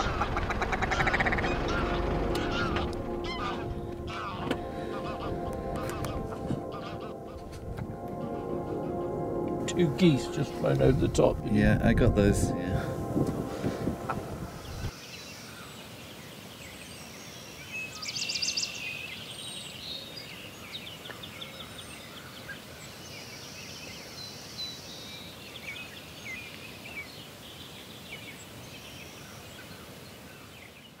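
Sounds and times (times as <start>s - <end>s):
bird trill: 0.0s - 7.5s.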